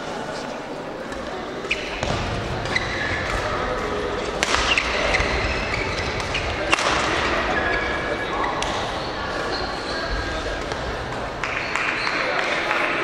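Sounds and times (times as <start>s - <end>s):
murmur of voices: 0.0s - 13.0s
shoes squeaking on court: 1.0s - 12.5s
racket striking shuttlecock: 1.6s - 7.4s.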